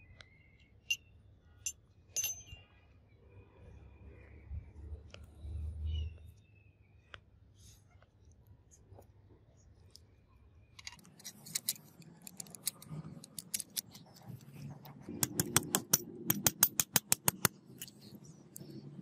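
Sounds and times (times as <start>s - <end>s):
small metal parts clicking: 0.8s - 2.6s, 10.7s - 14.6s.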